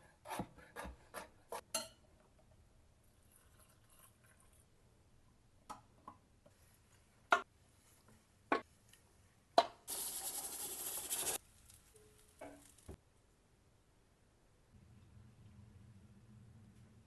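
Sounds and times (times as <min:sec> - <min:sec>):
steam venting hiss: 0:09.9 - 0:11.4.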